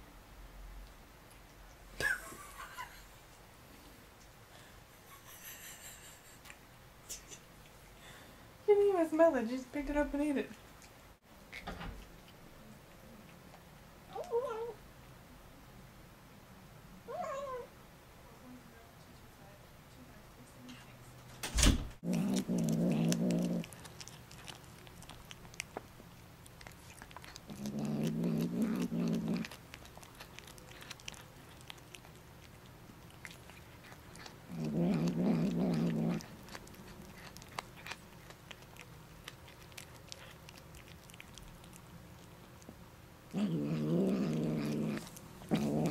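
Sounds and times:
cat growling: 22.0s - 25.8s, 26.6s - 42.3s, 43.3s - 45.9s
cat chewing and crunching: 22.0s - 45.9s.

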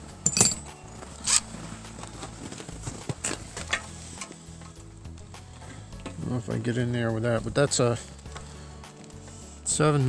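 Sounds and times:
tools rasping and clicking: 0.3s - 1.5s.

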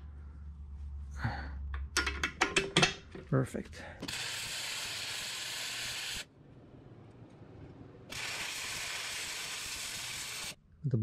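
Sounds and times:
arc welding hiss: 4.0s - 6.3s, 8.1s - 10.6s.

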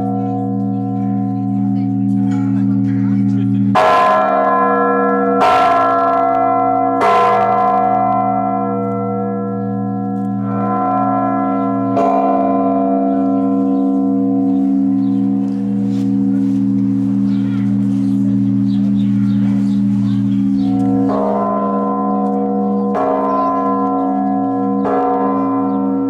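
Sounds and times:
large church bell ringing: 0.0s - 26.0s.

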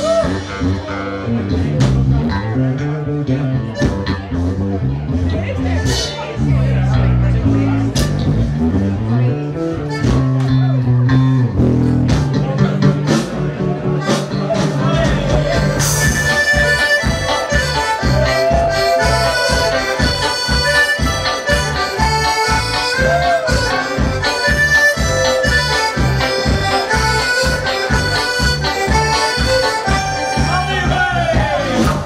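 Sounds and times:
folk-rock band playing: 0.0s - 32.0s
accordion: 3.4s - 32.0s.

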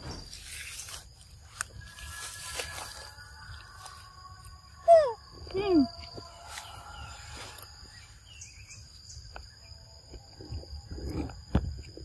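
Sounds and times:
high-pitched insect drone: 0.0s - 12.0s
bird chirp: 4.7s - 11.3s.

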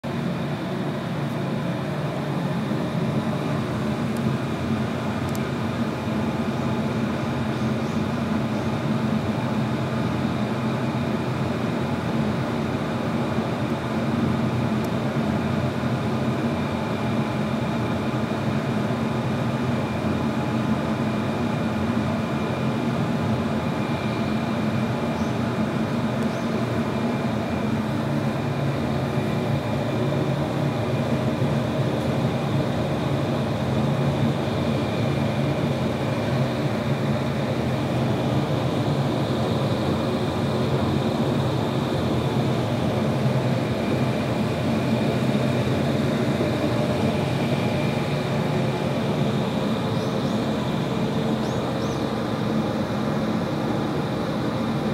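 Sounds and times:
mechanical hum and whir: 0.0s - 54.9s.

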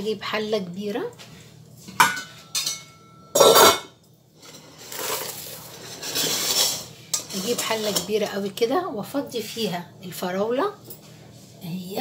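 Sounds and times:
metal pot and bowl clanking: 1.9s - 8.2s.

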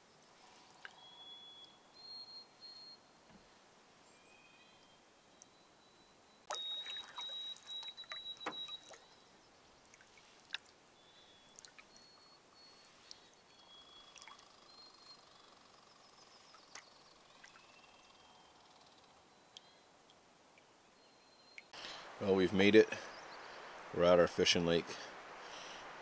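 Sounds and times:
faint bird whistles: 0.9s - 3.1s, 4.1s - 9.3s, 11.0s - 15.6s
paddle splashing water: 6.5s - 9.1s, 9.8s - 12.0s.

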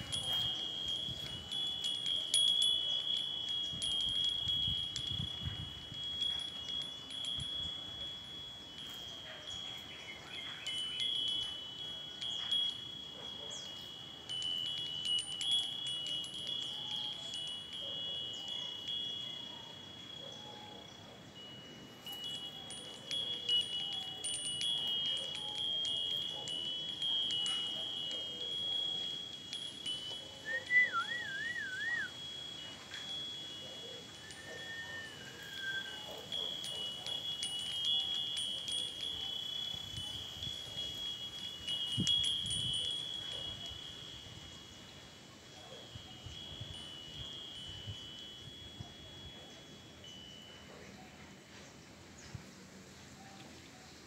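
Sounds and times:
wind chime ringing: 0.0s - 54.0s
short warbling whistle: 30.5s - 32.2s.

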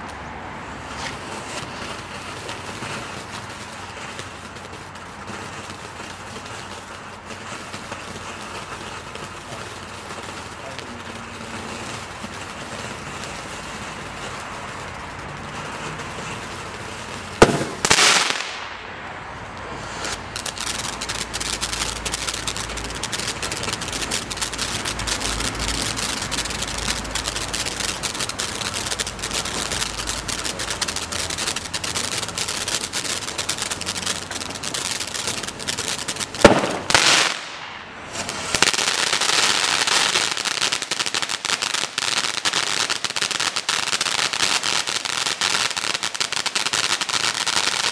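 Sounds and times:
firework bangs: 0.0s - 47.9s
firework crackling: 0.0s - 47.9s
firework sparks hissing: 0.0s - 47.9s.

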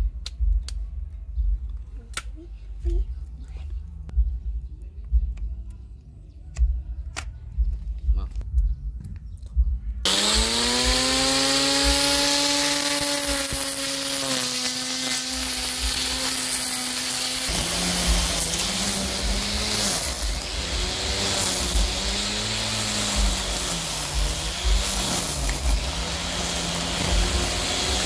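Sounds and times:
blade cutting grass: 10.1s - 28.0s
electric cutter motor whining: 10.1s - 28.0s.

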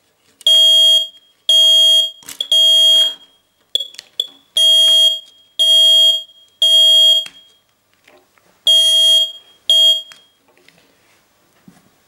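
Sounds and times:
smoke alarm beeps: 0.5s - 7.6s, 8.7s - 10.4s.

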